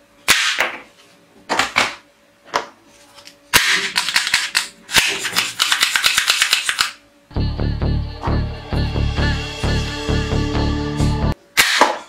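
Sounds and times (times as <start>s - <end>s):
plastic toy guns firing: 0.3s - 0.8s, 3.5s - 7.0s, 11.6s - 12.0s.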